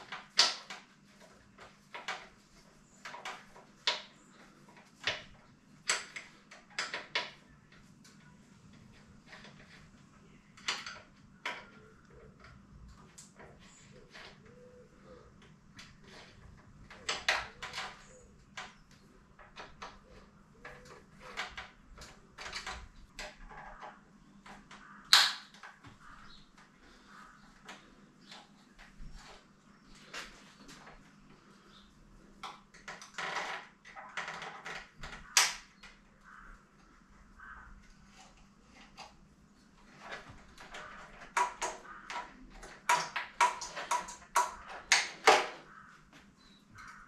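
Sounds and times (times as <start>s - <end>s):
hand tools and bike parts clattering: 8.8s - 36.5s, 37.7s - 47.0s.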